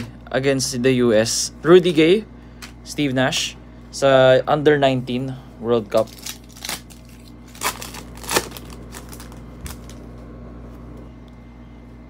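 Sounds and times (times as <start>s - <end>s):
foil wrapper crinkling: 5.9s - 10.2s.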